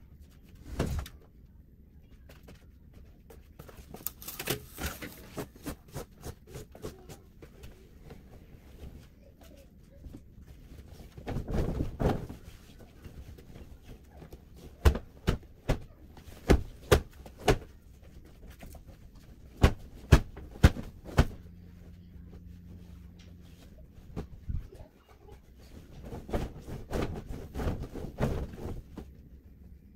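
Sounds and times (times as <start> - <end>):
sheets flapping and thumping: 0.2 - 1.3, 2.1 - 29.5
fabric rustling: 22.6 - 29.5.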